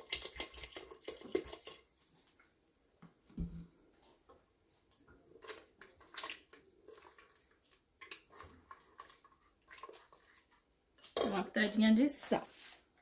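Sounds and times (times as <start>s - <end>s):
spoon stirring in a metal pot: 5.0s - 12.5s.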